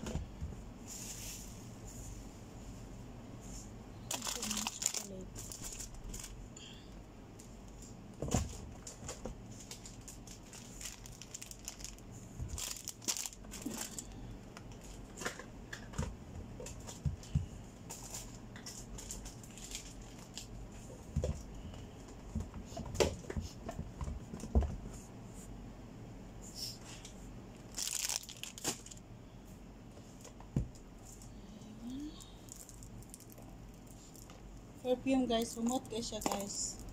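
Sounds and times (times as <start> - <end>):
packaging crinkling and rustling: 4.1 - 6.4, 8.3 - 15.8, 17.9 - 20.6, 27.6 - 29.0.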